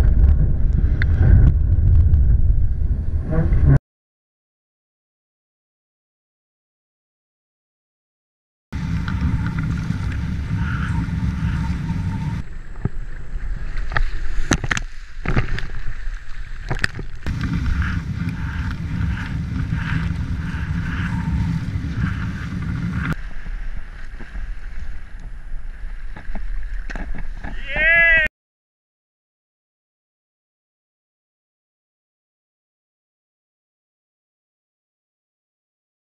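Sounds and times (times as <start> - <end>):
kiteboard skimming through water: 0.0 - 3.8, 8.8 - 28.3
wind on microphone: 0.0 - 3.8, 8.8 - 28.2.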